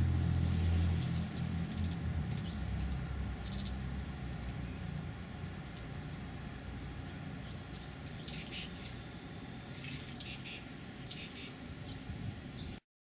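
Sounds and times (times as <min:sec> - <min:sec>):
bird chip calls: 0:01.0 - 0:03.8, 0:06.0 - 0:12.8.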